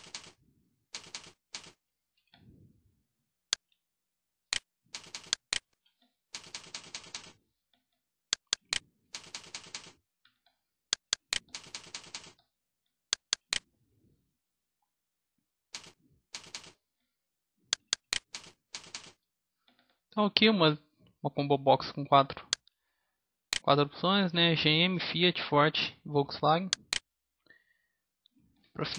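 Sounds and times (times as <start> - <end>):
computer keyboard typing: 0.0 - 0.4, 1.0 - 1.8, 5.0 - 5.6, 6.4 - 7.4, 8.4 - 10.0, 11.0 - 12.4, 15.8 - 16.8, 17.8 - 19.2.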